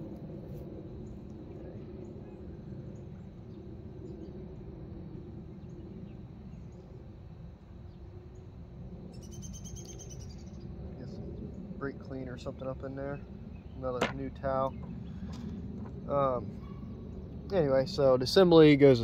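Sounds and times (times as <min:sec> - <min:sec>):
low outdoor background noise: 0:00.0 - 0:19.0
bird chirping: 0:09.1 - 0:11.6, 0:13.0 - 0:15.5.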